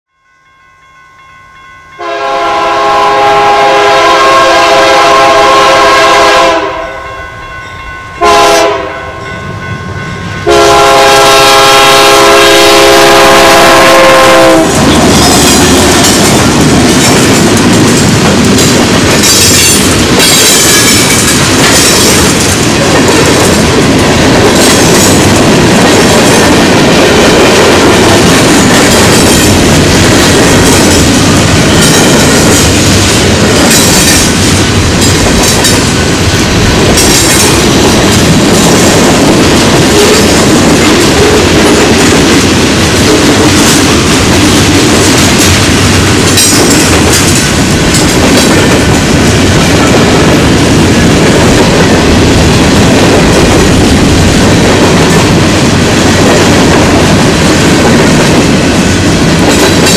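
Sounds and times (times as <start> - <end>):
locomotive air horn blasts: 2.0 - 7.2, 8.2 - 9.2, 10.4 - 14.8
wheel clatter over rail joints: 14.8 - 26.6, 28.0 - 50.0.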